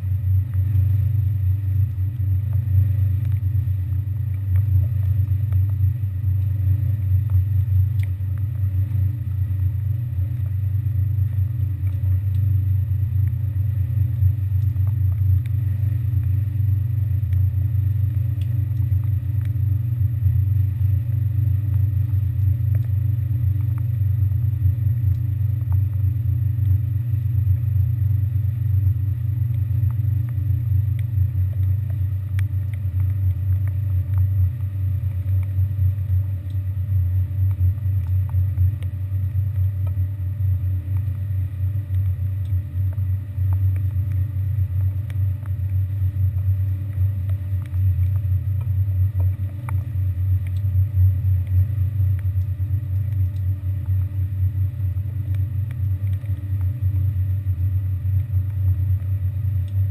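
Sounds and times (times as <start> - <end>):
faint clicks: 7.2 - 8.6, 17.3 - 19.6, 29.4 - 36.6, 37.4 - 40.0, 40.9 - 50.8, 51.4 - 54.1, 55.2 - 56.8.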